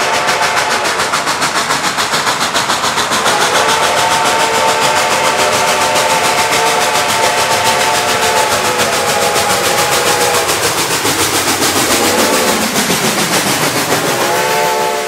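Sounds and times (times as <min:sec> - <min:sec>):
steam locomotive chime whistle: 0:00.0 - 0:01.1, 0:03.2 - 0:10.9, 0:12.0 - 0:12.7, 0:14.0 - 0:15.0
locomotive exhaust beat: 0:00.0 - 0:15.0.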